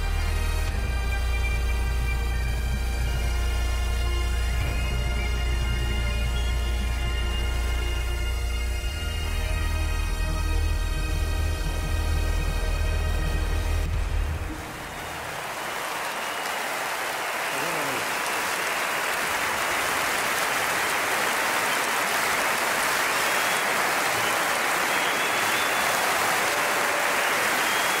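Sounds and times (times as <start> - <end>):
large audience applauding: 14.5 - 28.0.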